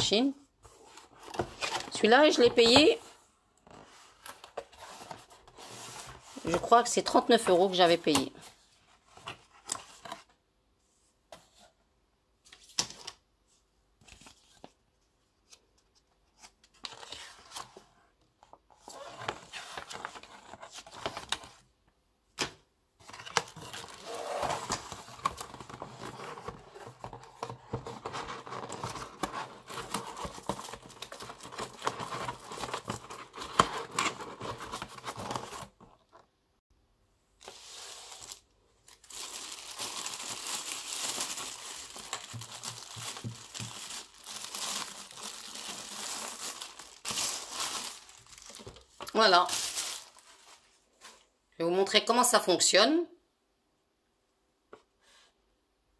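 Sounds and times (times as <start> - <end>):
packaging rustling and crinkling: 18.8 - 21.6, 23.0 - 36.0, 37.4 - 51.1.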